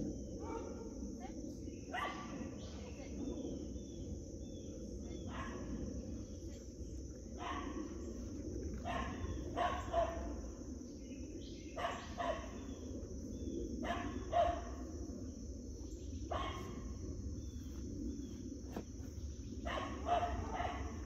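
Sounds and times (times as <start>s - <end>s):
dog barking: 0.4s - 1.0s, 1.9s - 2.4s, 5.3s - 5.7s, 7.4s - 7.8s, 8.8s - 10.3s, 11.8s - 12.6s, 13.8s - 14.8s, 16.3s - 16.8s, 19.6s - 21.0s.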